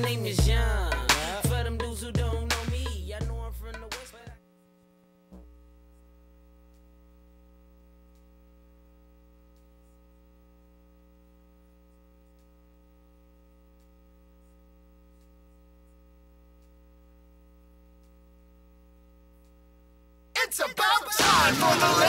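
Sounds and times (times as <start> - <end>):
electrical mains hum: 0.0 - 22.0
faint ticks: 8.0 - 8.4, 11.2 - 12.8, 13.4 - 18.5, 19.3 - 19.7.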